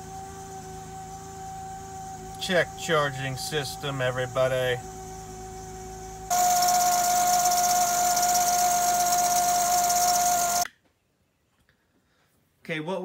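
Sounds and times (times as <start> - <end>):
high-pitched alternator whine: 0.0 - 10.7.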